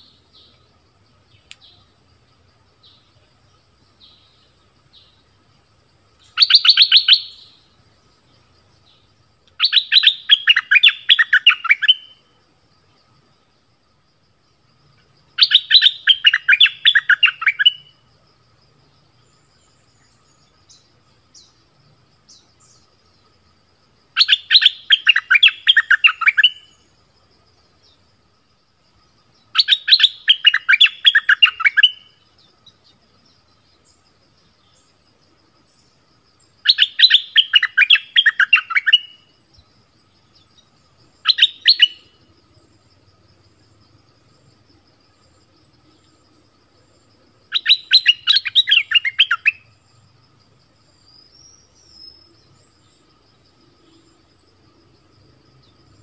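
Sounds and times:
bulbul singing: 0:06.2 - 0:12.2, 0:15.3 - 0:18.0, 0:24.2 - 0:26.9, 0:29.5 - 0:33.0, 0:36.6 - 0:42.2, 0:47.5 - 0:49.7.

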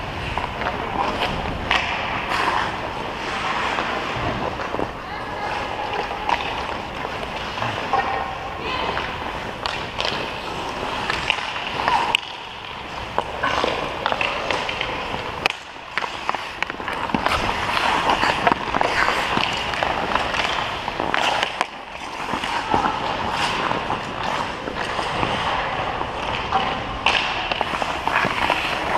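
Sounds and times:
skates scraping on ice: 0:00.0 - 0:28.9
hockey stick clacking on puck: 0:09.0 - 0:28.9.

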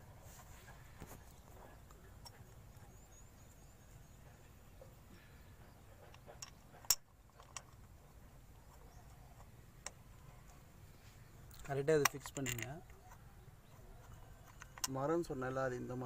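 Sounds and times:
faint metal clicks and taps: 0:06.0 - 0:10.6, 0:11.5 - 0:15.1.

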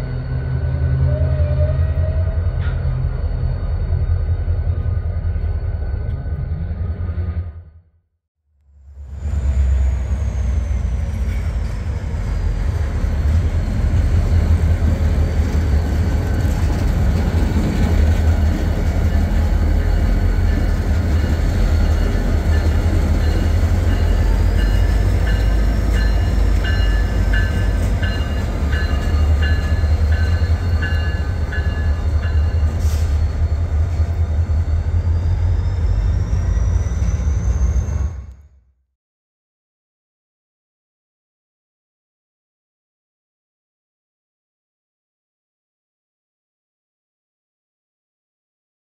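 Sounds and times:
deep locomotive engine rumble: 0:00.0 - 0:07.9, 0:08.7 - 0:38.6.

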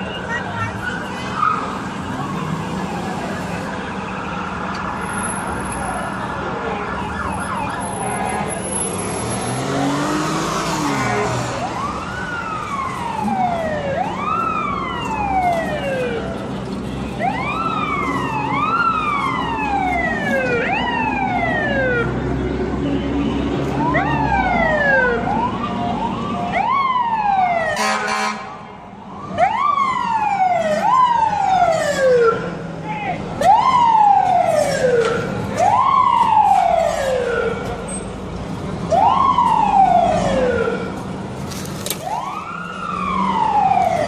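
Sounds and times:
emergency vehicle siren wailing: 0:00.0 - 0:44.0
street noise: 0:00.0 - 0:44.0
harsh horn blast: 0:27.7 - 0:28.6.

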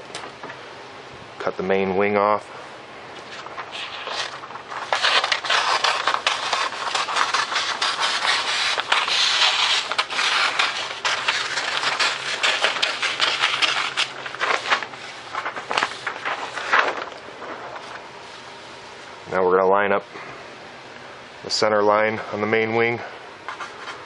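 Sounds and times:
scissors cutting paper: 0:03.7 - 0:14.9.

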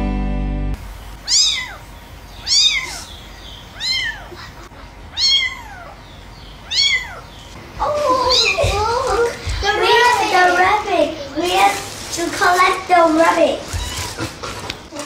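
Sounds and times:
kitten mewing: 0:01.2 - 0:01.8, 0:02.4 - 0:06.0, 0:06.6 - 0:08.9, 0:13.7 - 0:14.4.

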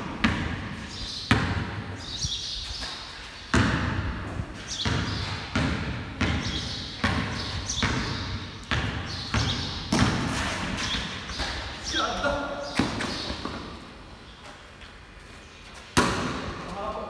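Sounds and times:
basketball bouncing on concrete: 0:00.0 - 0:02.0, 0:02.7 - 0:11.8, 0:12.6 - 0:13.8, 0:16.0 - 0:16.8.

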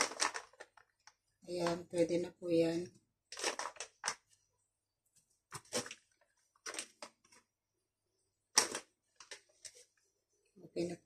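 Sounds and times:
plastic packet crinkling: 0:00.0 - 0:01.1, 0:03.3 - 0:04.3, 0:05.5 - 0:07.4, 0:08.6 - 0:09.8.

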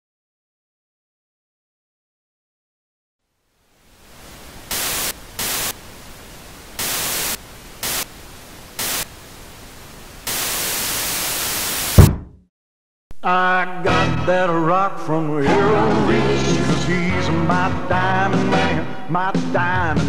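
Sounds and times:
television static hiss: 0:03.3 - 0:12.1.

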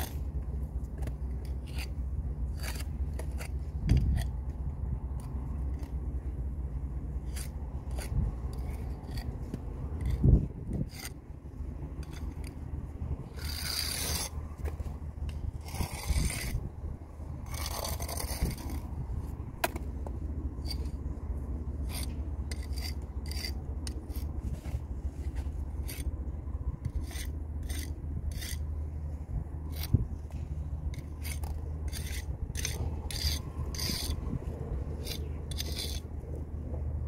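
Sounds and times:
brick jointer scraping mortar: 0:00.0 - 0:04.5, 0:12.0 - 0:16.7, 0:17.4 - 0:26.1, 0:26.8 - 0:28.8, 0:29.7 - 0:36.4.

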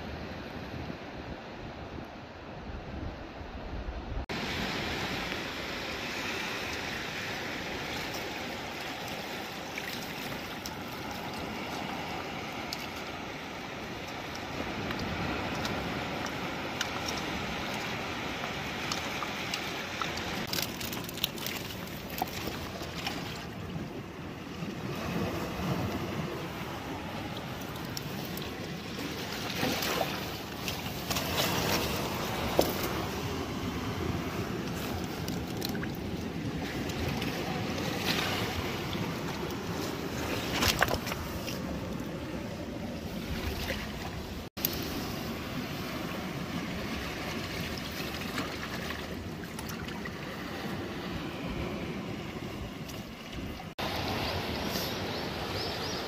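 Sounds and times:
wind: 0:00.0 - 0:56.0
water hiss: 0:53.8 - 0:56.0.

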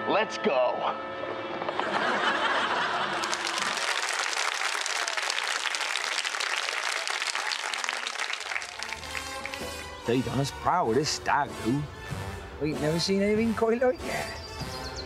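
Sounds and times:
crowd applauding: 0:01.7 - 0:10.0.

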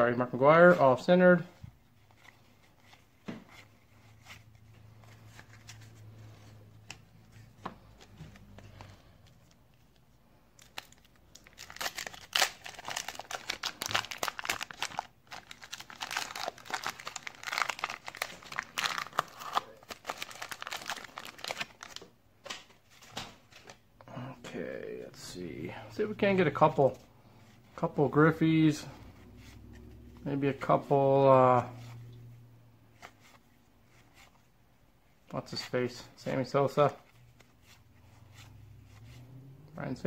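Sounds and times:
card handling: 0:02.0 - 0:23.8
wrapper crinkling and tearing: 0:10.6 - 0:22.1.

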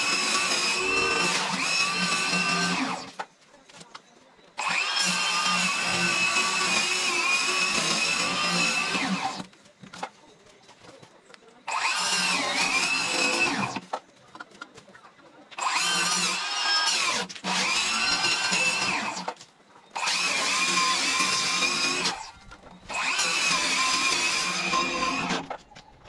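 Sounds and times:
power tool motor whine: 0:00.0 - 0:03.1, 0:04.6 - 0:09.4, 0:15.6 - 0:19.3, 0:20.0 - 0:22.3, 0:22.9 - 0:25.5.

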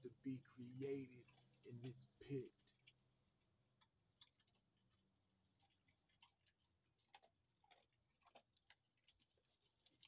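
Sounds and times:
faint small clicks and ticks: 0:03.8 - 0:10.0.

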